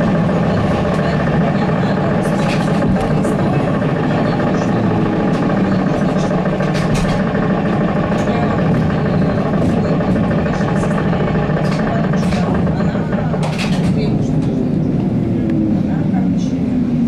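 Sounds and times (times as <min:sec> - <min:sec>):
trolleybus running noise: 0:00.0 - 0:17.0
clicks and rattles from body: 0:02.3 - 0:03.2, 0:06.4 - 0:07.4, 0:10.0 - 0:14.6.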